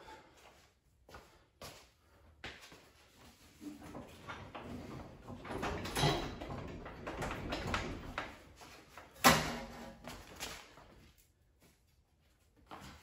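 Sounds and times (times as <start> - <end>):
metal clanking and scraping: 3.7 - 8.2.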